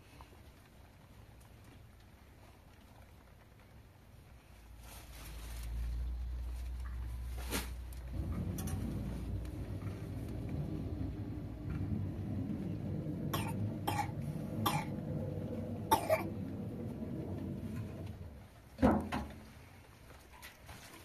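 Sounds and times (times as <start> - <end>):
low background rumble: 0.0 - 20.4
person coughing: 13.3 - 15.0, 15.9 - 16.3.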